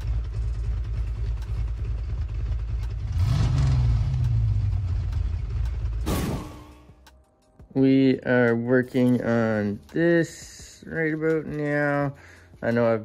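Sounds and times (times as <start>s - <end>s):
car engine revving: 0.0s - 6.7s.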